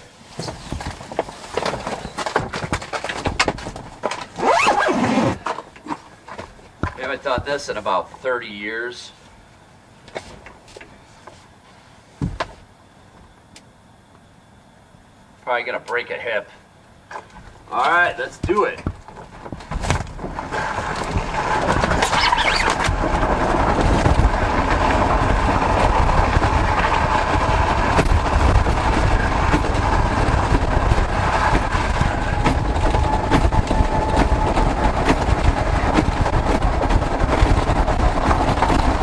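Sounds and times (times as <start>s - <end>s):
wind buffeting microphone: 18.9s - 39.0s.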